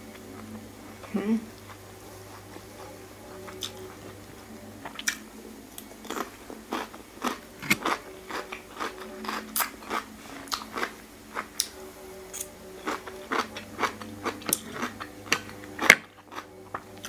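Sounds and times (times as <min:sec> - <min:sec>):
crunchy chewing: 0:05.8 - 0:17.0.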